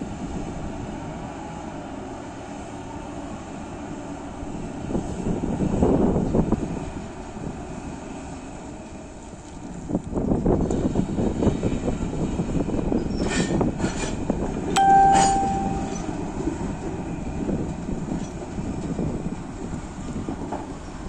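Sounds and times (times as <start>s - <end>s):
sharp metallic clang: 14.8s - 16.1s.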